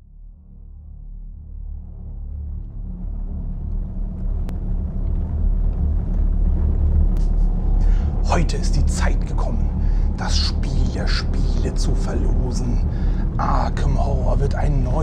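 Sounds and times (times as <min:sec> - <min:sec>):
low rumbling ambient drone: 0:00.0 - 0:15.0.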